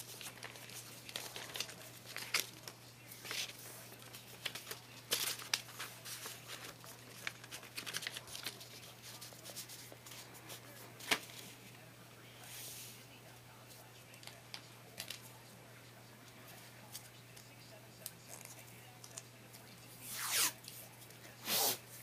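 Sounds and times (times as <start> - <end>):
paper rustling and crinkling: 0.0 - 12.6, 13.6 - 15.4.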